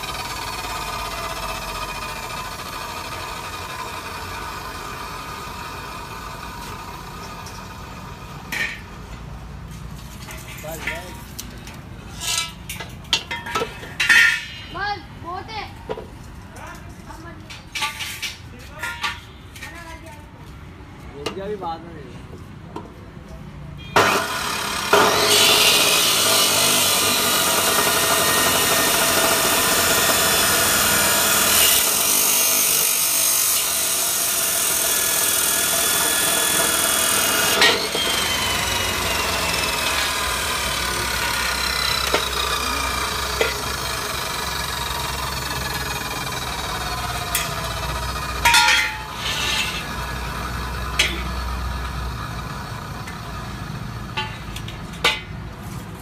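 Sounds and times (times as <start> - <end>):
chop saw grinding steel: 0.0 - 9.0, 24.0 - 55.4
saw motor whine: 24.0 - 53.5.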